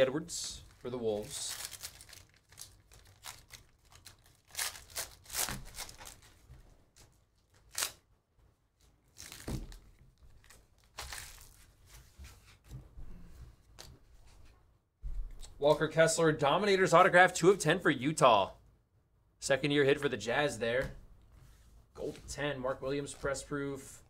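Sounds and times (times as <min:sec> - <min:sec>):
foil wrapper tearing and crinkling: 0:01.1 - 0:06.4, 0:07.0 - 0:08.0, 0:09.1 - 0:11.7.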